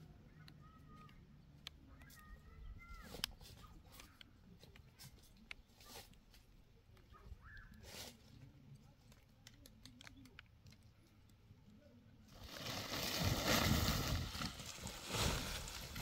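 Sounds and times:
dry leaves crackling: 12.3 - 16.0
dry leaves rustling and crunching: 12.3 - 16.0.

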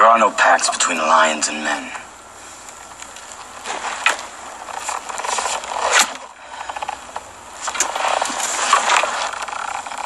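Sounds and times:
armour creaking and clinking: 3.0 - 10.0
armour scrape: 3.6 - 6.3, 7.6 - 9.8.

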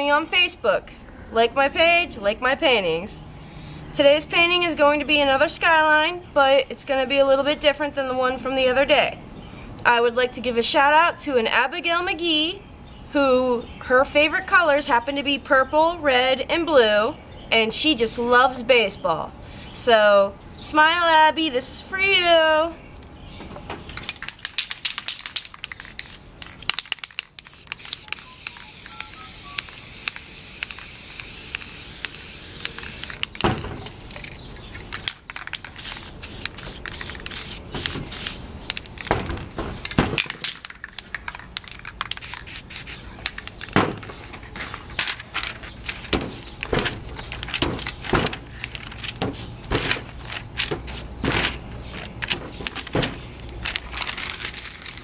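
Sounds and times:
spray can clicks and rattles: 23.9 - 33.4, 34.1 - 44.1
spray paint can hissing: 24.6 - 33.3, 35.4 - 38.8, 42.0 - 43.7
paper crinkling: 43.0 - 55.0.

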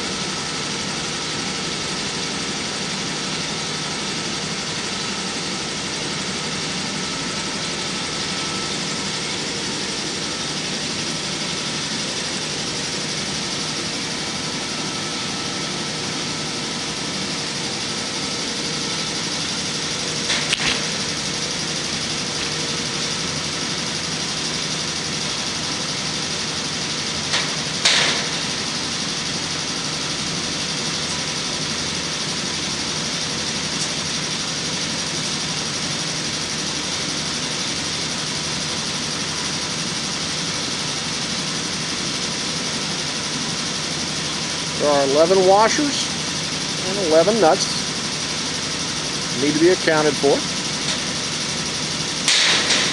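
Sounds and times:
machinery humming: 0.0 - 52.9.

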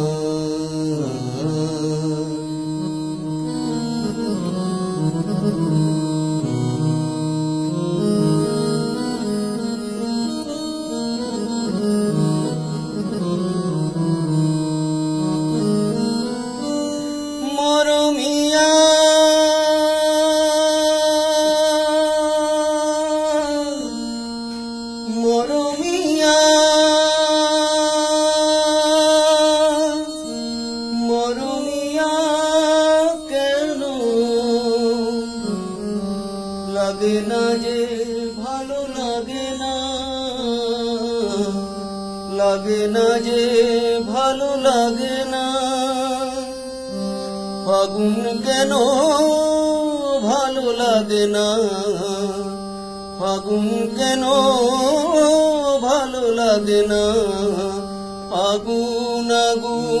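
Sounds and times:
man singing slow song: 0.0 - 4.6, 17.4 - 60.0.

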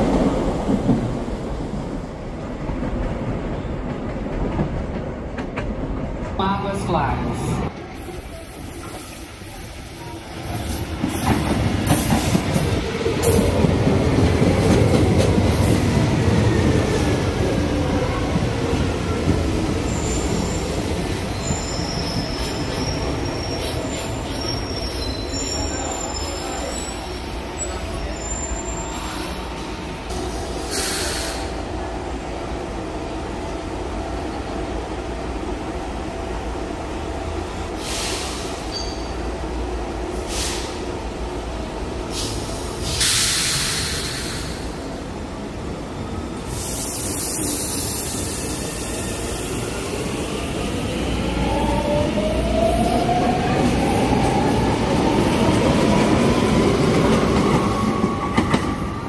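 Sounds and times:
wheel squeals: 21.3 - 27.0.

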